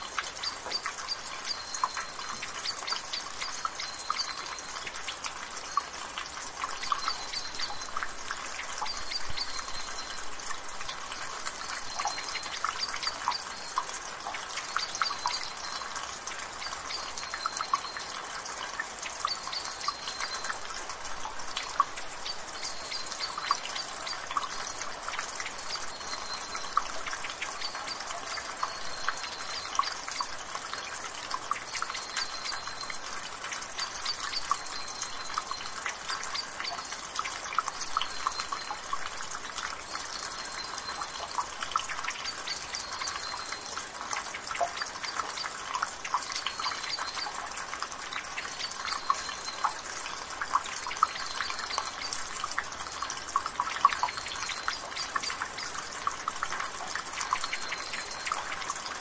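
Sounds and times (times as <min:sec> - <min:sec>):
water trickling from gutter: 0:00.0 - 0:59.0.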